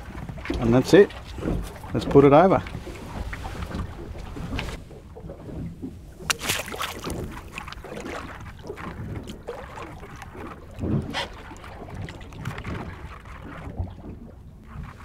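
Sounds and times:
wind and water noise: 0.0 - 15.0
pot splashing into sea: 6.2 - 14.2.

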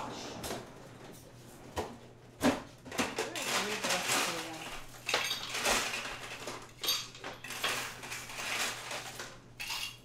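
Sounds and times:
dishes and utensils clinking: 2.9 - 10.0.

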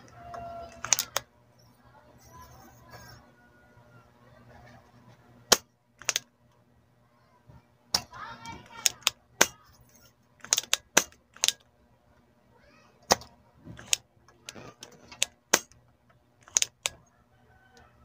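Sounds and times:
desoldering pump snapping: 0.3 - 1.3, 5.5 - 6.3, 7.9 - 11.7, 13.0 - 17.0.

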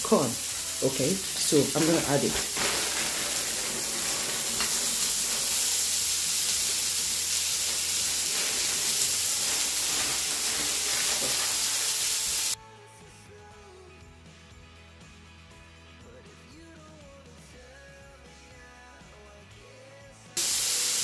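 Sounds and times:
vegetables sizzling in a frying pan: 0.0 - 12.6, 20.4 - 21.0.

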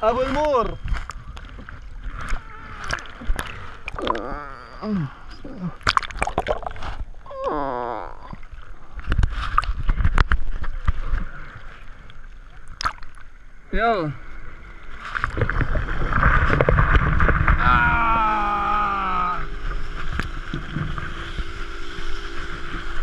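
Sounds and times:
sea water sloshing and splashing: 0.0 - 4.8, 5.4 - 13.6, 14.4 - 18.0.

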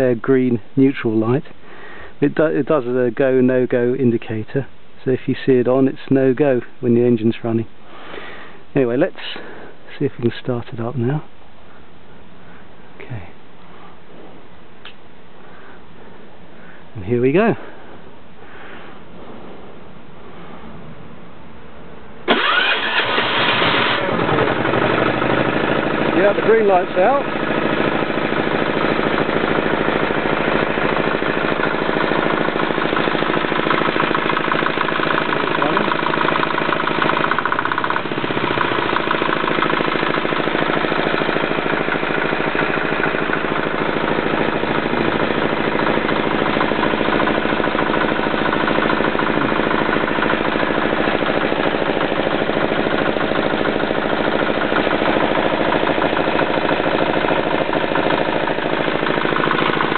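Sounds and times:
diesel engine running steadily: 22.2 - 59.9.

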